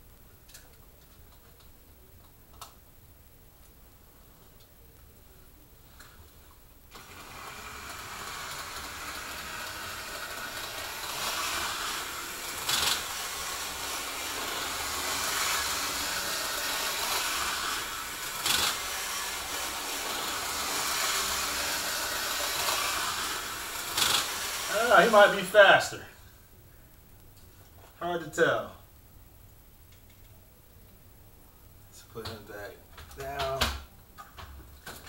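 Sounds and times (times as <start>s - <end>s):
model train motor and wheel hum: 6.9s - 25.6s.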